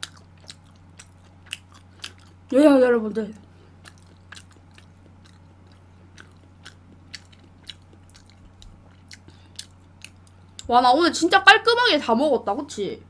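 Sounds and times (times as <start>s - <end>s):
person chewing: 0.0s - 2.5s, 3.4s - 10.7s.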